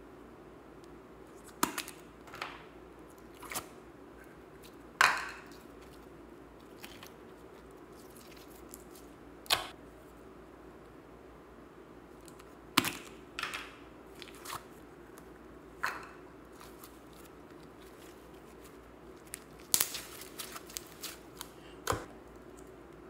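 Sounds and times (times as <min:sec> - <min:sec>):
slime snapping and popping: 0:19.6 - 0:20.6.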